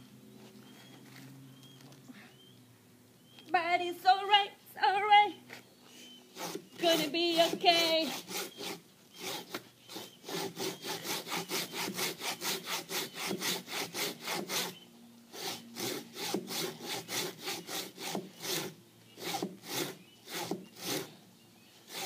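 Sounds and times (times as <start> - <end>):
hand saw cutting wood: 6.3 - 21.2.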